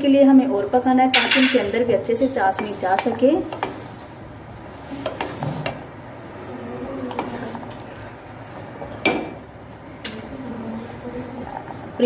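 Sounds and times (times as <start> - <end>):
metal ladle clinking on steel pot: 1.1 - 1.7.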